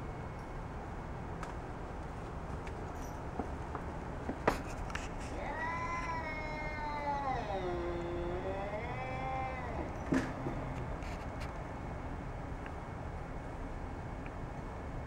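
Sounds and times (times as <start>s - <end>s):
cat yowling: 5.3s - 10.9s.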